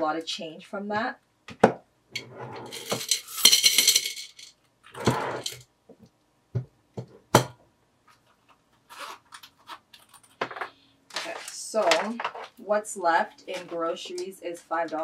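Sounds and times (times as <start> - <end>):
coins jingling into glass jar: 2.6 - 4.5.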